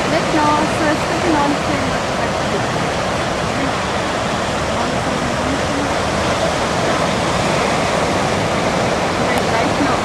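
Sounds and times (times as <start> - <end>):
ocean surf breaking: 0.0 - 10.0.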